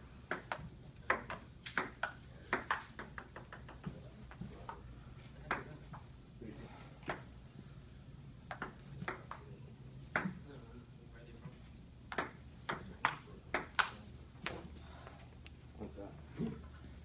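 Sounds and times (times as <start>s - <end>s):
table tennis ball clicking: 8.5s - 9.4s.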